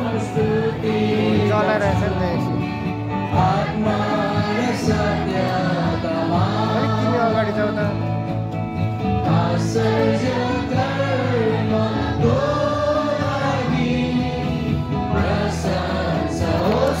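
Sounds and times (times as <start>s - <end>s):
group of voices singing: 0.0s - 8.3s, 8.9s - 17.0s
instrumental accompaniment: 0.0s - 17.0s.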